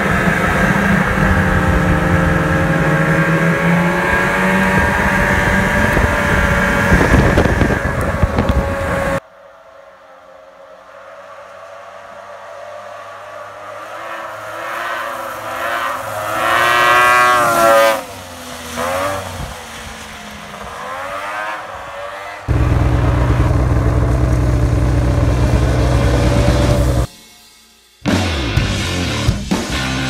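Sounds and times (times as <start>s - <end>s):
snow buggy engine revving: 0.0s - 9.2s, 12.3s - 19.8s, 20.4s - 27.1s
loud steady low rumble: 22.5s - 27.1s.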